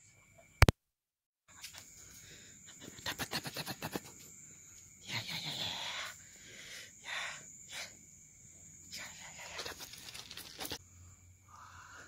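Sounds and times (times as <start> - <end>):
crickets trilling: 0.0 - 0.7, 1.5 - 12.0
rustling: 9.6 - 10.8.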